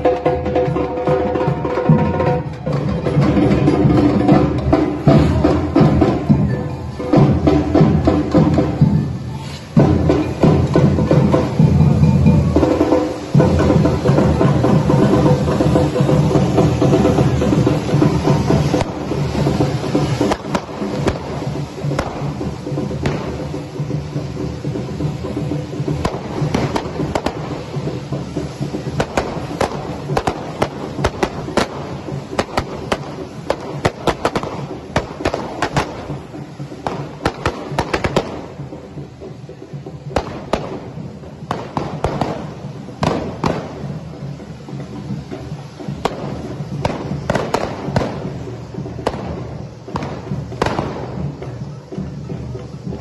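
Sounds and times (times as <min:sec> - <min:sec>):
firecracker bangs: 0:00.0 - 0:39.1, 0:40.0 - 0:44.9, 0:45.7 - 0:51.6
firework fountains hissing: 0:00.0 - 0:53.0.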